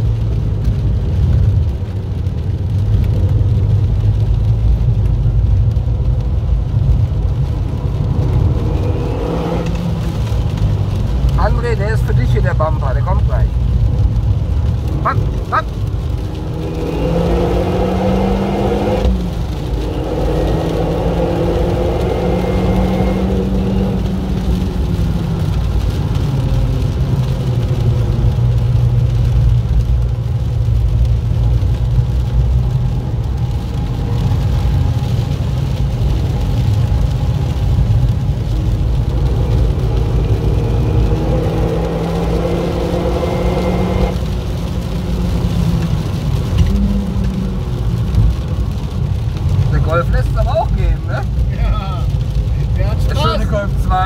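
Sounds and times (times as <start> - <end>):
car engine from inside cabin: 0.0 - 51.5
rain: 0.0 - 54.0
tyres hissing on wet track: 14.3 - 54.0.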